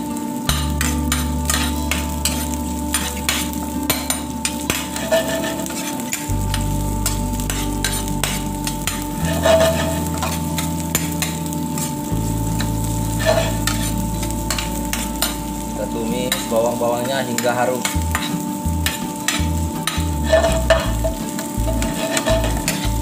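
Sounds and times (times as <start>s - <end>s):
low hum: 0.0s - 16.8s, 18.0s - 23.0s
food sizzling in hot oil: 0.0s - 23.0s
metal spatula scraping pan: 0.5s - 6.3s, 7.0s - 12.0s, 13.2s - 15.4s, 17.8s - 22.9s.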